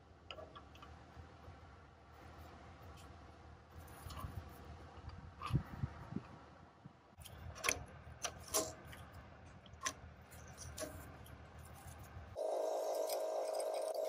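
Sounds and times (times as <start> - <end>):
steady droning noise: 10.7 - 14.0.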